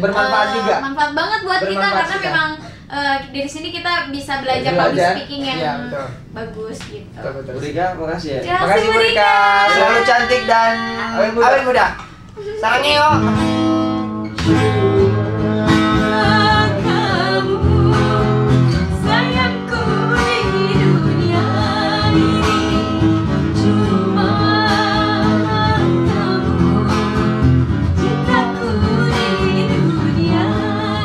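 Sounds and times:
woman and man singing a duet: 0.0s - 2.9s, 8.4s - 11.8s, 14.4s - 31.0s
strummed acoustic guitar: 12.8s - 31.0s.

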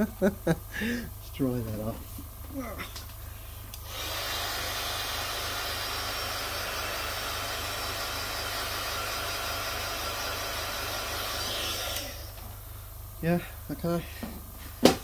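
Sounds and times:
hair dryer blowing: 3.8s - 12.5s.

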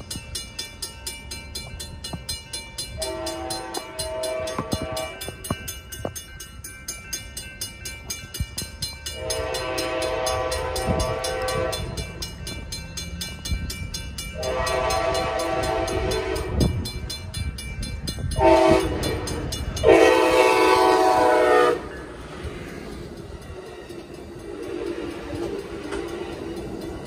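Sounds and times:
railroad crossing bell ringing: 0.0s - 27.0s
train rumble: 0.0s - 27.0s
train horn blasts: 3.0s - 5.6s, 9.1s - 12.1s, 14.3s - 16.9s, 18.3s - 22.0s, 24.5s - 26.1s.

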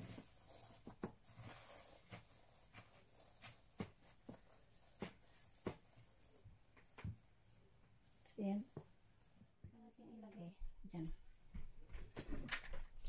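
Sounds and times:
hands pressing breadcrumbs: 0.0s - 7.4s.

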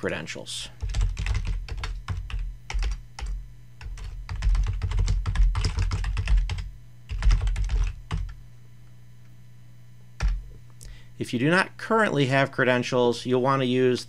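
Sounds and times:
steady low hum: 0.0s - 14.0s
keyboard typing: 0.8s - 8.4s, 10.2s - 10.4s.

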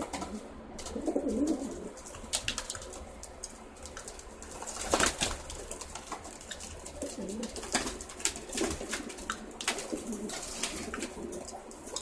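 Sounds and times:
pigeons cooing: 0.0s - 2.3s, 5.8s - 12.0s
wings flapping: 0.0s - 12.0s.

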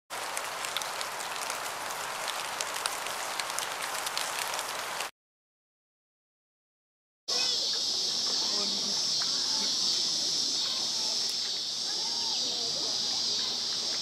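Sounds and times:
crackling hiss with clicks: 0.1s - 5.1s, 7.3s - 14.0s.

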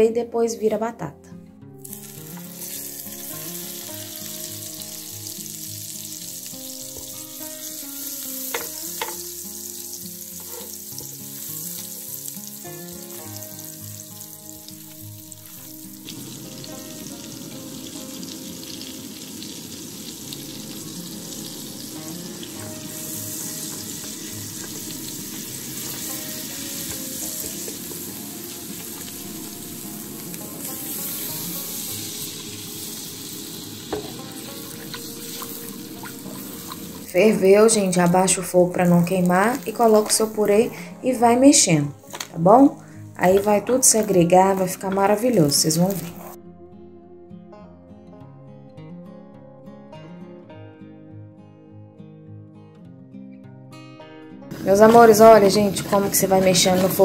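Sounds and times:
butter sizzling in a pan: 1.8s - 42.3s, 42.9s - 46.4s, 54.5s - 57.0s.

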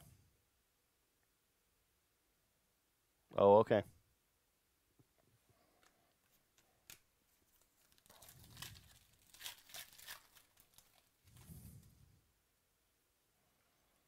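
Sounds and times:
foil wrapper tearing and crinkling: 6.9s - 11.4s.

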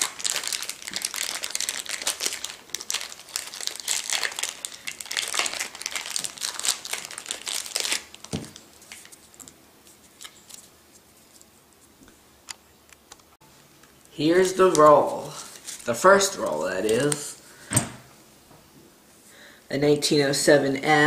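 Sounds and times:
plastic wrap crinkling and tearing: 0.0s - 10.7s, 14.3s - 17.3s.

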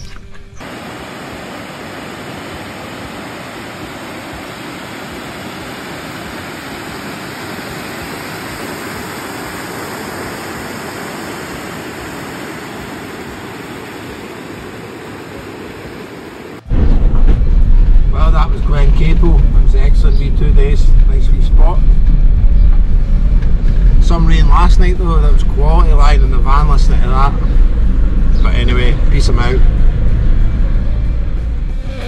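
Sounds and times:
rushing churning water: 0.6s - 16.8s.

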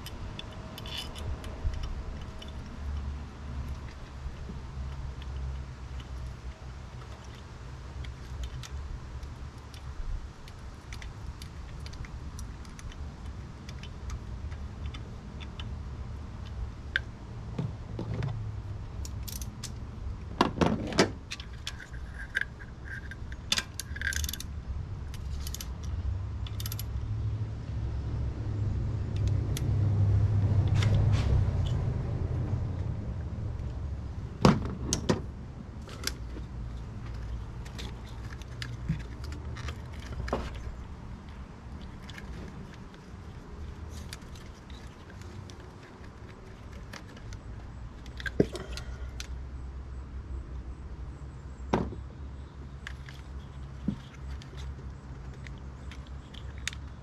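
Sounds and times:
socket wrench clinking: 0.0s - 2.7s, 21.3s - 24.5s, 26.5s - 26.9s.

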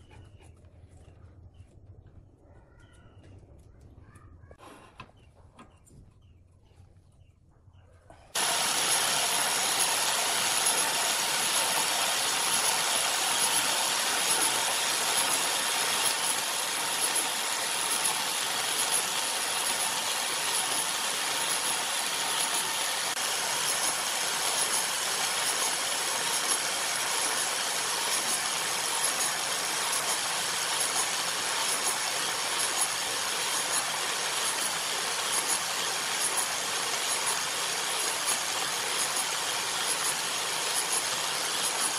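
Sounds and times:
angle grinder grinding wood: 8.3s - 41.9s.

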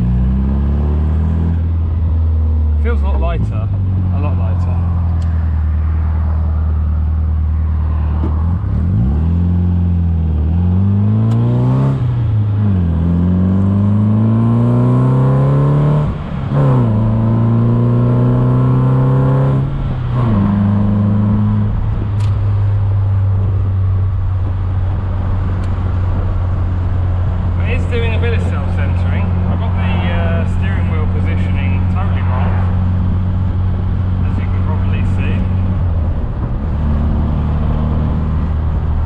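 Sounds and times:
car engine accelerating: 0.0s - 39.0s.

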